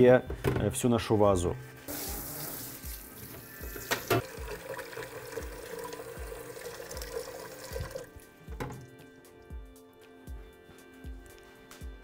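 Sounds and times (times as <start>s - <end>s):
tap water running into sink: 1.9s - 8.9s
background music with beat: 7.7s - 12.0s.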